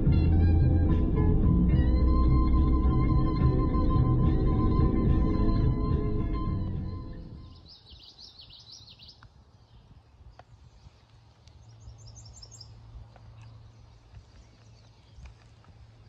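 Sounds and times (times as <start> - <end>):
music: 0.0 - 7.6
faint outdoor background: 0.0 - 16.0.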